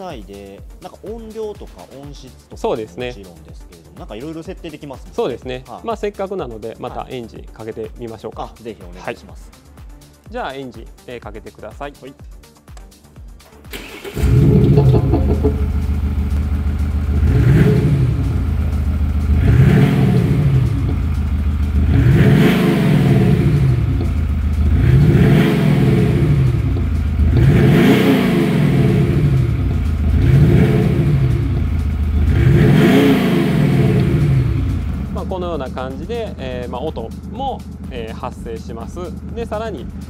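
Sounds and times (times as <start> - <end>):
diesel engine starting: 13.6 - 40.0
synthetic exhaust note revving: 14.0 - 40.0.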